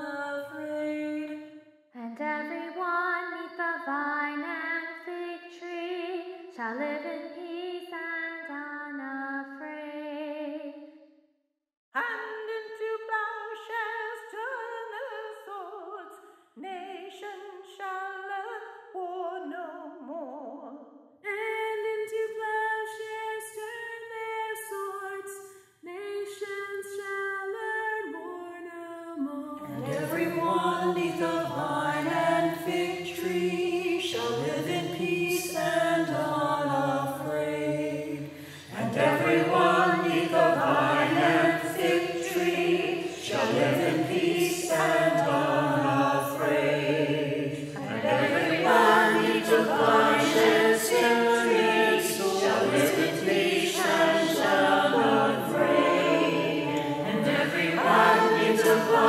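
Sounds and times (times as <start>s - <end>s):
women singing a cappella: 0.0s - 1.4s, 2.0s - 10.8s, 12.0s - 59.0s
mixed choir singing: 29.6s - 59.0s.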